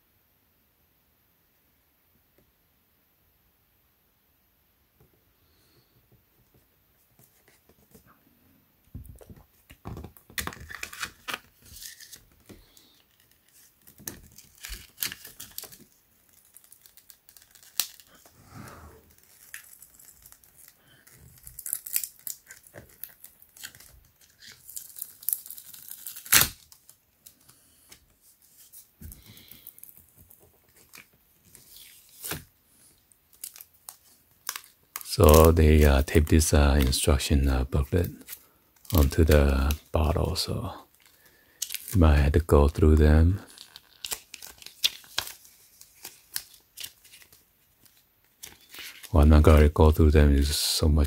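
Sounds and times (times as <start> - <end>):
plastic sleeve crinkling: 10.4 - 18.3, 19.0 - 27.5, 28.2 - 51.0
adhesive tape peeling and tearing: 16.3 - 18.1, 21.4 - 26.7.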